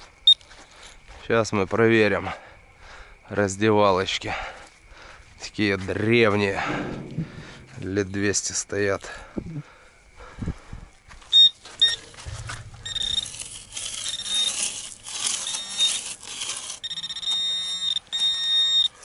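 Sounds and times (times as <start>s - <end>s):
rustling and scraping: 5.8s - 8.6s, 11.2s - 18.1s
continuous high buzz: 9.5s - 19.0s
pinpointer beeping: 11.4s - 14.7s, 16.8s - 19.0s.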